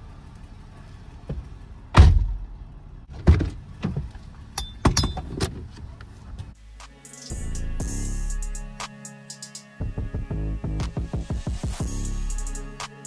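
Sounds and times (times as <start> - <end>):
knocks and thuds in truck cab: 1.3 - 2.4, 3.1 - 5.7.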